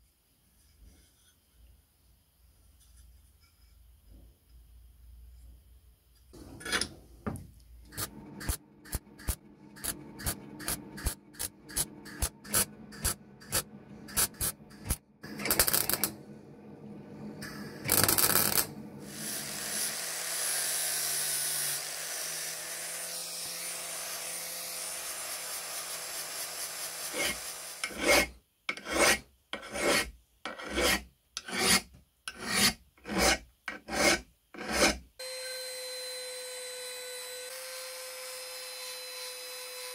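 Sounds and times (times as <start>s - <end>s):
scraping strokes on metal: 7.9s - 16.1s, 17.9s - 35.0s
angle grinder sanding: 17.9s - 30.0s
hand file strokes on metal: 21.4s - 35.0s.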